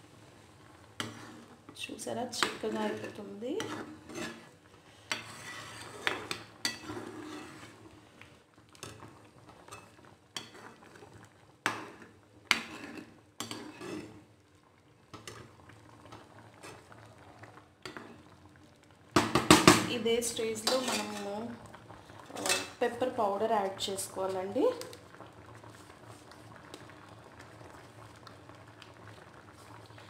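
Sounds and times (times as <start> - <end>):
spatula stirring pasta in sauce: 0.7 - 18.6, 20.4 - 23.2.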